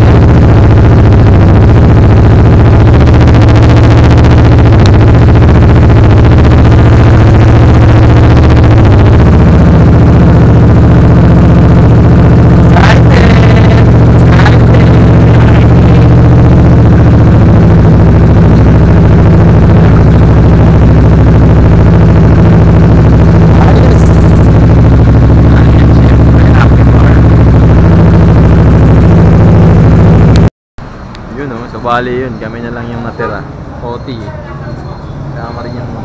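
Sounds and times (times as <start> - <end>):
loud motorcycle engine idling: 0.0 - 30.4.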